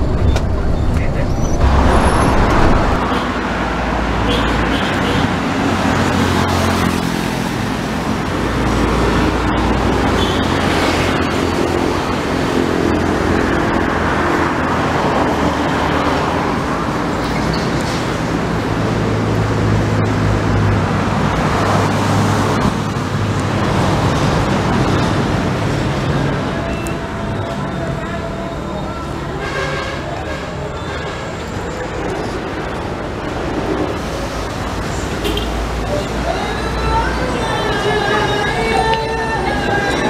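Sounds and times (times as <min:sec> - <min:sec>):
low engine hum: 0:00.0 - 0:03.2
vehicles passing by: 0:00.0 - 0:40.0.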